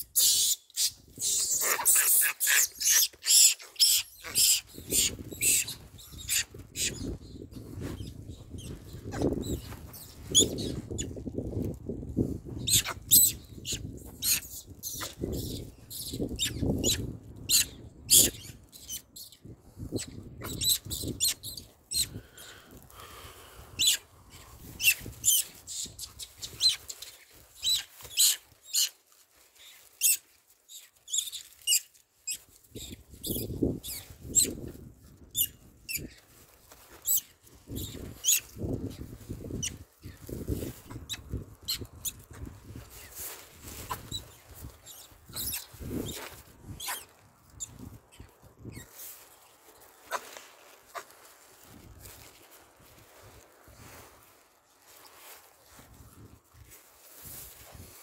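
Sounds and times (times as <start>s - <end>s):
rustling with crackles: 0.4s - 58.0s.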